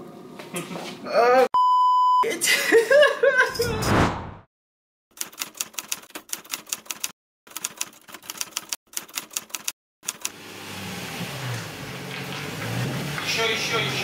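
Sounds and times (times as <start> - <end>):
typewriter keys clacking: 5.2 - 10.3.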